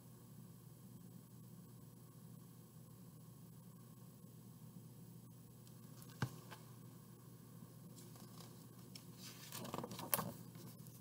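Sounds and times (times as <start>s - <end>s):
paper rustling and scraping: 7.9s - 11.0s.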